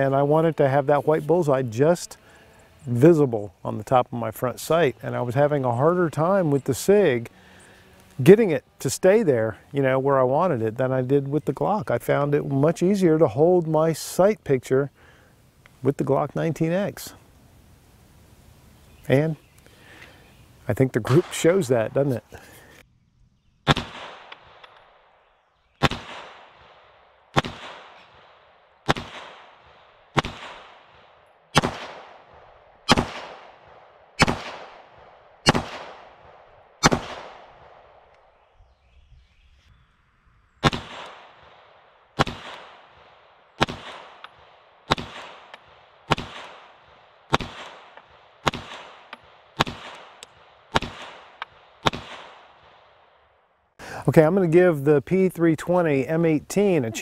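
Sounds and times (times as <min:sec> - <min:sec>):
pistol shots echoing: 0:23.7 - 0:24.8, 0:25.8 - 0:38.1, 0:40.6 - 0:53.0.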